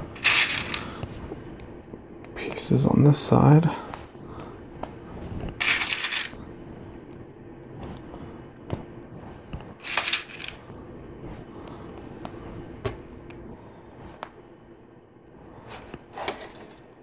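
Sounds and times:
plastic pieces clinking and rattling: 0:00.1 - 0:00.9, 0:05.6 - 0:06.4, 0:09.8 - 0:10.6.

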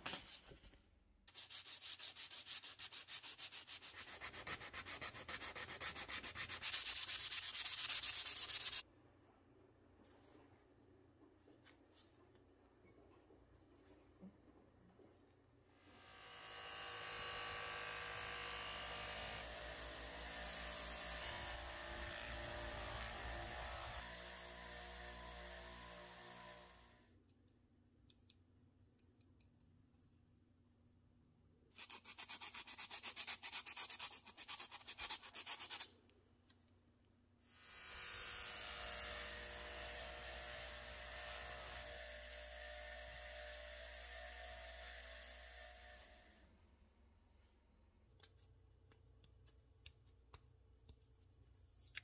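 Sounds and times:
cloth rubbing on metal: 0:01.3 - 0:08.8
rapid scrubbing strokes: 0:01.3 - 0:08.8.

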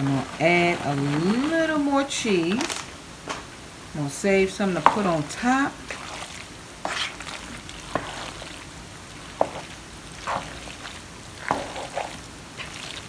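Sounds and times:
spoon squelching in pasta: 0:05.8 - 0:13.0.

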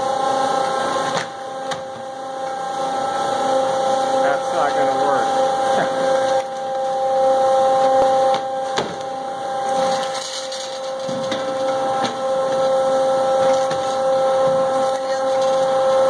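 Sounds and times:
slicer motor whine and hiss: 0:00.0 - 0:10.1.

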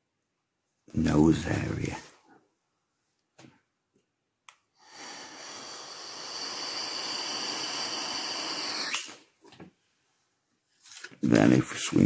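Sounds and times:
breathy hiss: 0:04.8 - 0:09.3.

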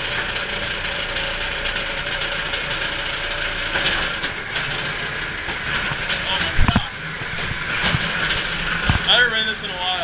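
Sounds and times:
ride car rumbling along track: 0:00.0 - 0:10.0.

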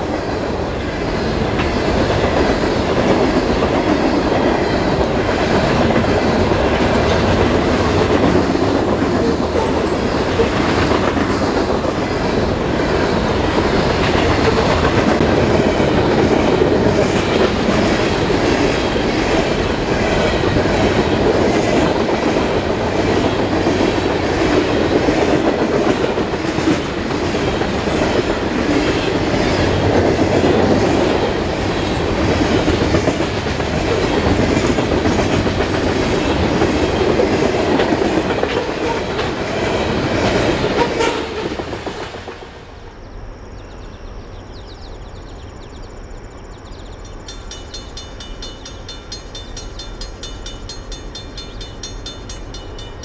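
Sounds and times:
freight train rumbling past: 0:00.0 - 0:53.0
outdoor background: 0:00.0 - 0:53.0
wheels clacking over rail joints: 0:00.8 - 0:42.5.

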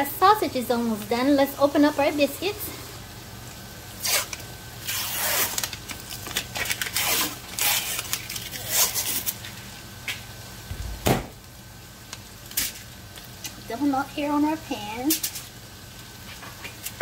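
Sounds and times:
paper label tearing: 0:04.0 - 0:09.4.

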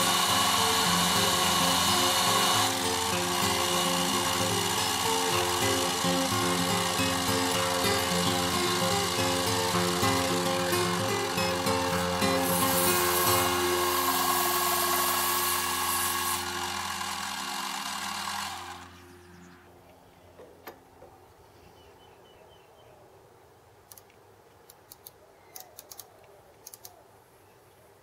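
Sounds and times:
metal lathe cutting: 0:00.0 - 0:19.1.

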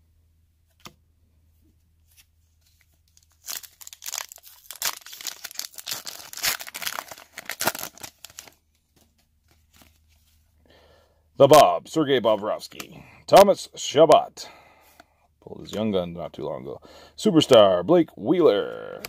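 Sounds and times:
foil wrapper tearing and crinkling: 0:03.1 - 0:08.6.

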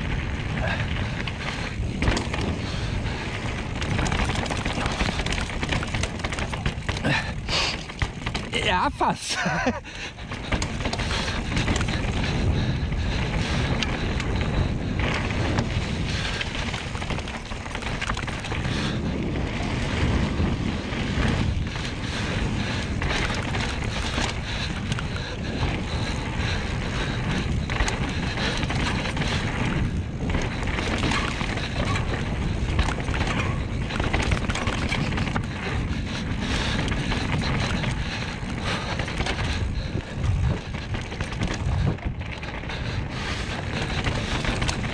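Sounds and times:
tyres rumbling on dirt: 0:00.0 - 0:44.9
wind rushing over microphone: 0:00.0 - 0:44.9.

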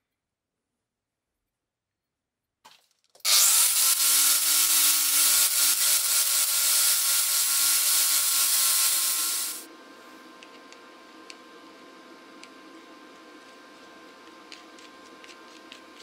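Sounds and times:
angle grinder whining: 0:03.3 - 0:09.7.

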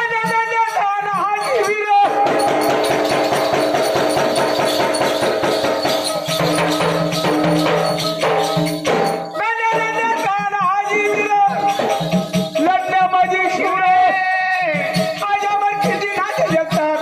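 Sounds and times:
man singing into a microphone: 0:00.0 - 0:02.6, 0:09.4 - 0:17.0
folk ensemble playing fast beat: 0:00.0 - 0:17.0
held instrumental tones: 0:00.0 - 0:17.0
jingling percussion: 0:00.0 - 0:17.0.

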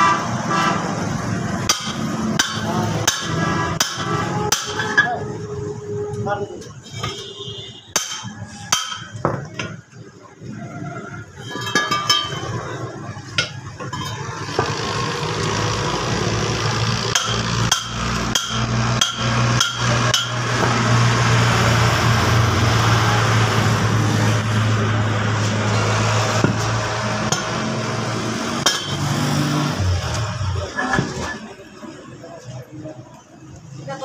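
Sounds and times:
angle grinder grinding metal: 0:14.1 - 0:20.5.

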